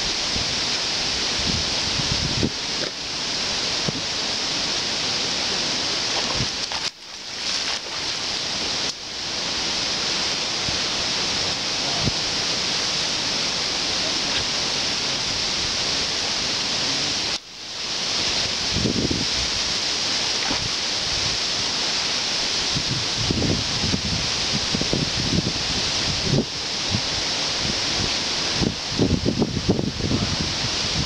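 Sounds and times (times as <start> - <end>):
creek rushing over riffles: 0.0 - 23.7
wind: 0.0 - 31.0
wind thumps on microphone: 1.3 - 3.0, 3.8 - 4.1, 6.0 - 8.9, 18.4 - 19.7, 20.4 - 21.5, 22.7 - 31.0.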